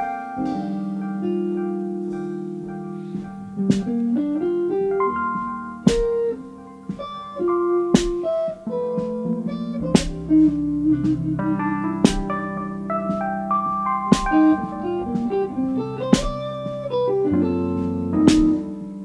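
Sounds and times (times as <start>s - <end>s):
electric guitar: 0.0s - 19.0s
keyboard notes: 0.0s - 19.0s
drum and cymbal hits: 8.0s - 8.2s, 10.0s - 10.3s, 12.0s - 12.3s, 14.1s - 14.4s, 16.2s - 16.5s
bass: 9.4s - 19.0s.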